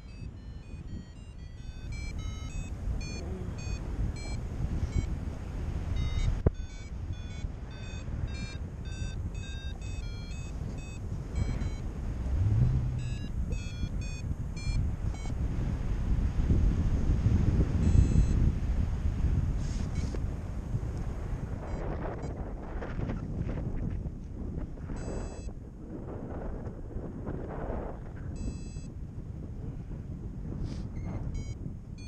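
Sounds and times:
variometer beeping: 0.0 - 15.4, 17.8 - 18.5, 19.9 - 20.2, 21.6 - 22.5, 25.0 - 25.6, 28.3 - 28.9, 31.0 - 32.0
wind rushing over microphone: 0.0 - 32.0.

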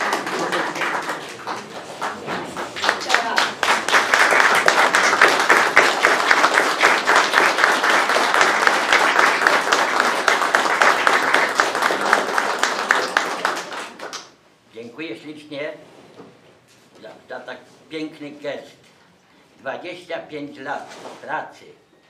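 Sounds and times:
crowd applauding: 0.0 - 14.4.

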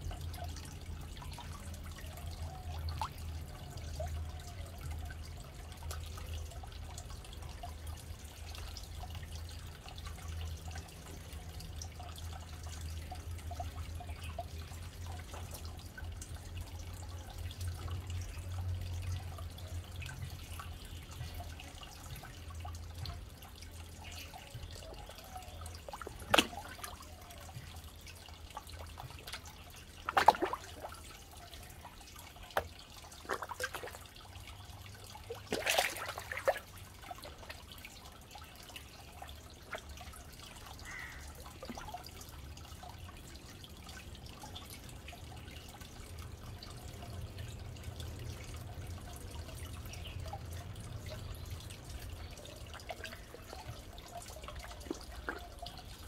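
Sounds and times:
soft water drips and laps: 0.0 - 56.0
fish splashing at water surface: 25.6 - 27.5, 29.0 - 31.1, 32.0 - 34.5, 35.1 - 37.7.

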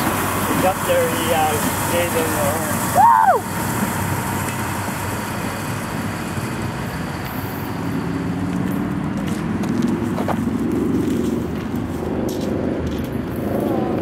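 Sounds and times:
low engine drone: 0.0 - 14.0
train wheels rumbling on track: 0.0 - 14.0
rising and falling voice-like call: 2.9 - 3.5.

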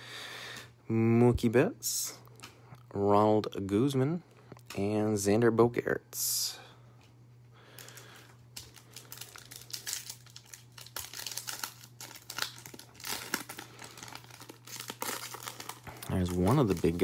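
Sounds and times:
foil wrapper crinkling and tearing: 7.8 - 17.0.

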